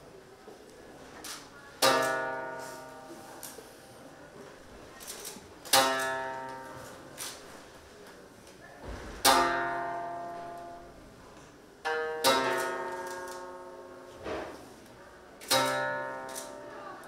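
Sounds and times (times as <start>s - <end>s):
zither plucked chords: 1.8s - 4.0s, 5.7s - 7.4s, 9.2s - 14.2s, 15.4s - 17.0s.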